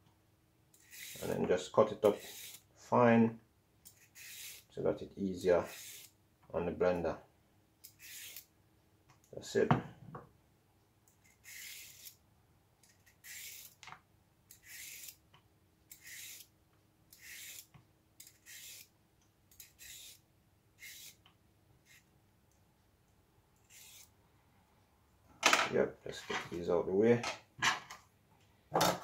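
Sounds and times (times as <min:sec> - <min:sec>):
peeler scraping carrot: 0:00.8 - 0:01.4, 0:02.0 - 0:02.6, 0:03.9 - 0:04.7, 0:05.6 - 0:06.1, 0:07.8 - 0:08.5, 0:11.3 - 0:12.2, 0:12.8 - 0:13.8, 0:14.5 - 0:15.2, 0:15.9 - 0:16.5, 0:17.1 - 0:18.9, 0:19.5 - 0:20.2, 0:20.8 - 0:21.2, 0:23.6 - 0:24.1.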